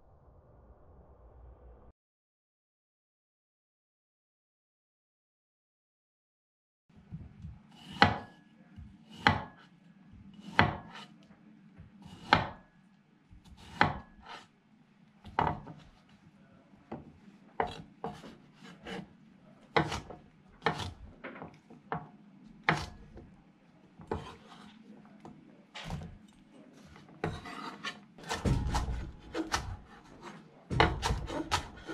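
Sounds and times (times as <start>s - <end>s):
knife chopping on wooden board: 7.4s - 9.7s, 10.3s - 11.2s, 11.9s - 12.7s, 13.4s - 14.5s, 15.3s - 15.9s, 16.9s - 19.1s, 19.7s - 23.2s, 24.0s - 24.7s, 25.8s - 26.2s, 27.2s - 31.9s.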